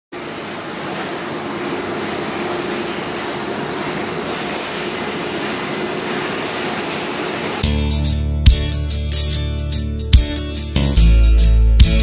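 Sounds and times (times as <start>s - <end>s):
factory machinery running: 0.1s - 8.0s.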